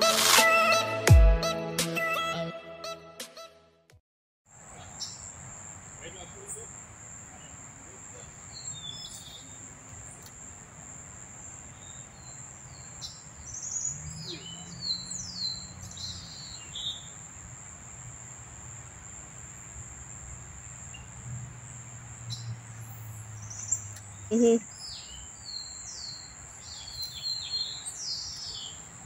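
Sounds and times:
high insect drone: 0:04.6 - 0:29.0
birds chirping and whistling: 0:08.5 - 0:10.3, 0:11.7 - 0:17.1, 0:22.3 - 0:28.9.

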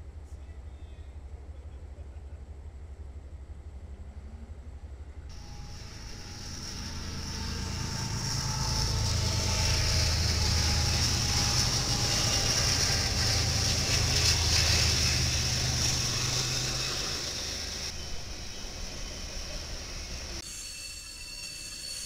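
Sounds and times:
diesel locomotive engine drone: 0:00.0 - 0:22.0
steady high hiss: 0:05.3 - 0:09.3.

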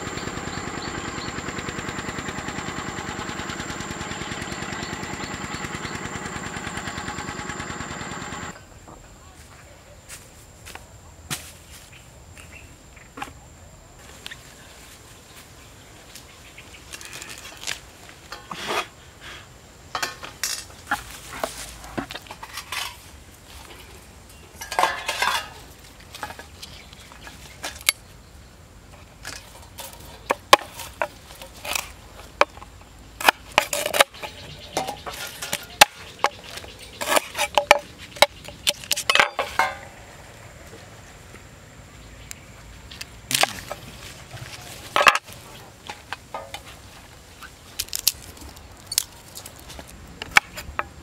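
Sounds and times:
metal cookware clinking: 0:24.6 - 0:25.6.

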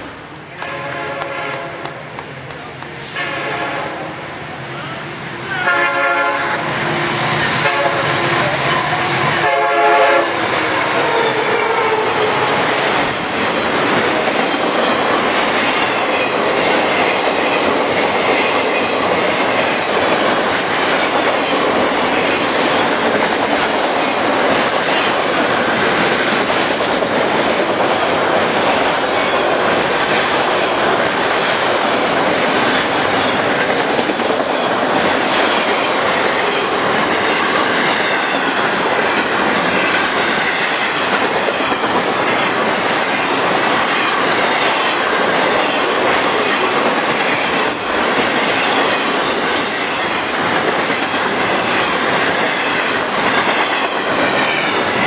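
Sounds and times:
clickety-clack of train wheels: 0:00.0 - 0:04.0, 0:05.4 - 0:55.0
train cars rumbling past: 0:00.0 - 0:55.0
locomotive air horn: 0:00.6 - 0:01.9, 0:03.0 - 0:04.2, 0:05.6 - 0:12.6.

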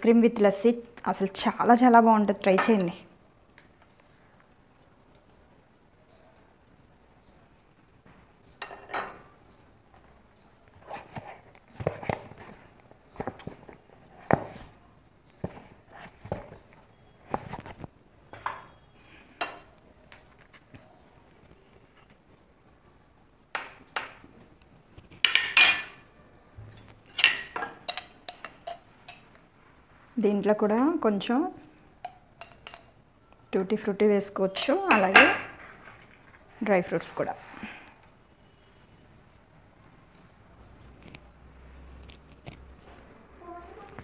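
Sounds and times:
spoon clinking on glass jar: 0:02.6 - 0:03.0, 0:27.1 - 0:29.3, 0:32.0 - 0:33.0, 0:34.5 - 0:35.5.

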